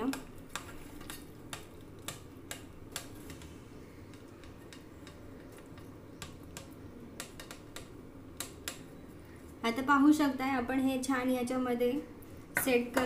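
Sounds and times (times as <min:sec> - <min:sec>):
spatula clicking on metal tray: 0:00.0 - 0:03.5, 0:04.1 - 0:08.8
faint steady hum: 0:00.0 - 0:13.0.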